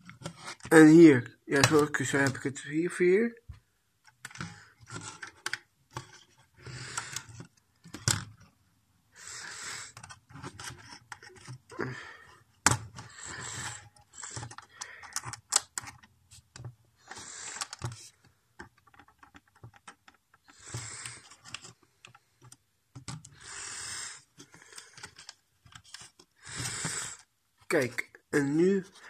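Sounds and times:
small plastic parts clicking: 4.0 - 8.5, 12.6 - 23.5, 24.4 - 27.2
rubber bands stretching: 9.2 - 16.1, 18.8 - 21.8, 23.0 - 28.8.

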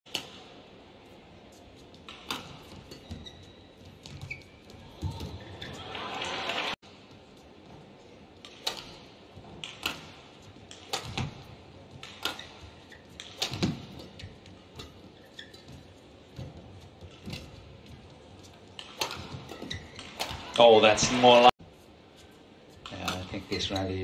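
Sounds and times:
racket hitting shuttlecock: 2.0 - 3.3, 8.4 - 15.8, 18.8 - 20.6.

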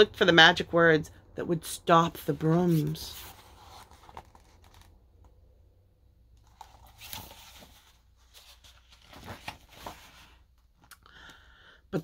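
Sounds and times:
book pages rustling: 2.3 - 5.4, 6.4 - 10.9.

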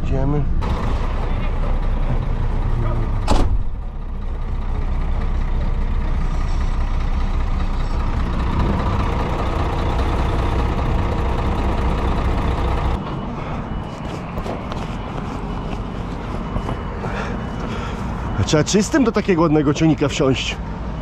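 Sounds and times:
diesel engine idling: 0.5 - 21.0.

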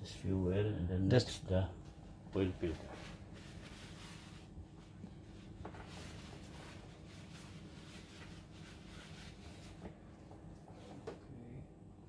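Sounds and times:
light scratching and rustling: 2.4 - 11.3.

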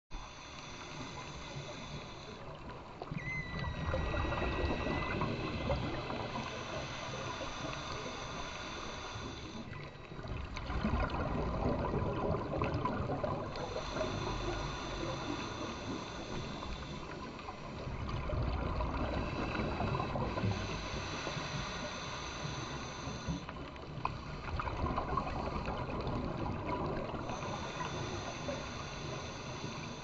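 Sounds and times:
fine crackling underwater: 0.1 - 30.0
muffled underwater rush: 0.1 - 30.0.

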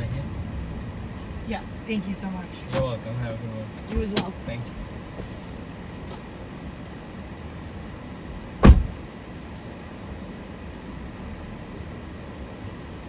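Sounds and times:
car engine humming: 0.0 - 13.0
car door slamming: 8.6 - 9.0.

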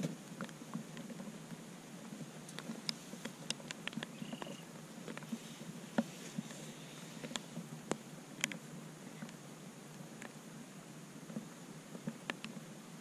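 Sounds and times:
raindrops tapping on camera: 0.0 - 10.4.

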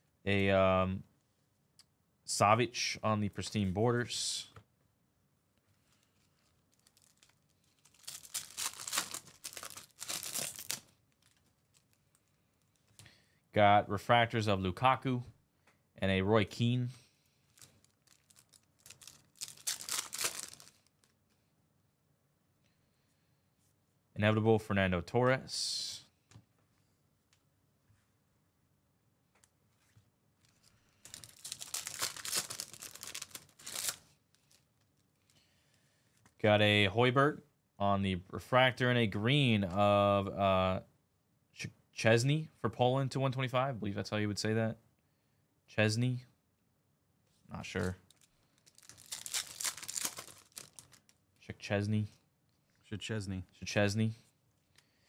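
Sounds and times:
foil wrapper crinkling and tearing: 5.8 - 13.0, 17.5 - 21.1, 30.4 - 35.4, 47.8 - 51.2.

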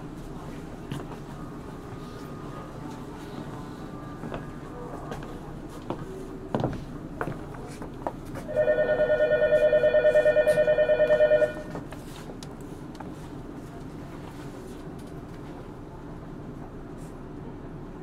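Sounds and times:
electric bell ringing: 8.5 - 11.8.

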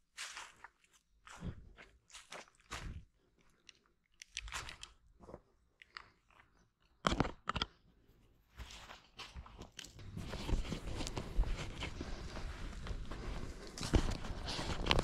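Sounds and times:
footsteps crunching dry leaves: 0.0 - 1.4.

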